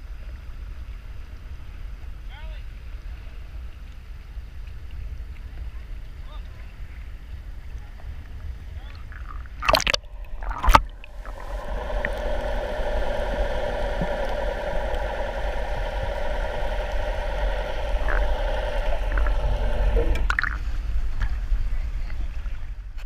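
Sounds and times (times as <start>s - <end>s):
boat engine hum underwater: 0.0s - 23.0s
low underwater rumble: 2.8s - 23.0s
water splashing: 8.2s - 21.5s.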